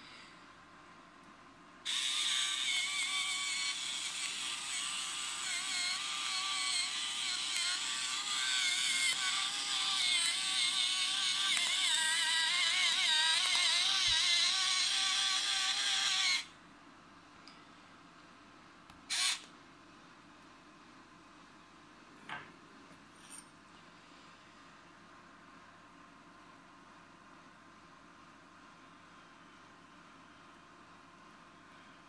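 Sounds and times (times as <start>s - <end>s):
electric pepper mill grinding: 1.9s - 16.5s, 19.1s - 19.5s.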